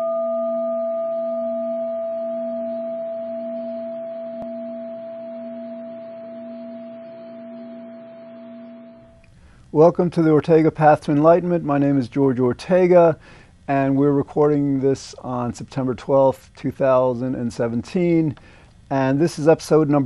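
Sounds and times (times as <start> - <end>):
singing bowl ringing: 0.0 - 9.2.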